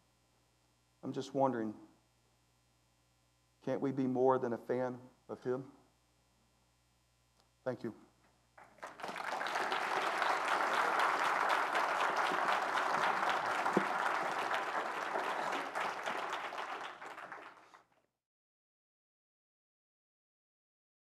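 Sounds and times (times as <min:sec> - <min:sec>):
congregation applauding: 0:08.6 - 0:18.1.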